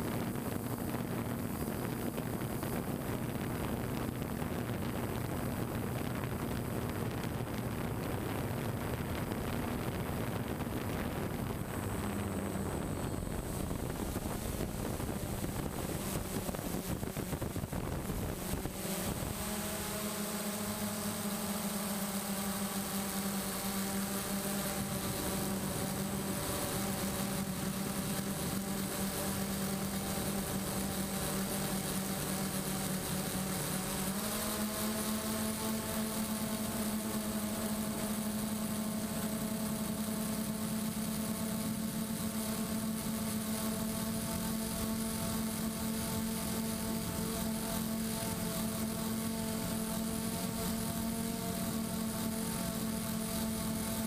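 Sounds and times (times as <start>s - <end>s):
wind noise rushing: 0.0s - 19.3s
drone motors humming: 0.0s - 54.0s.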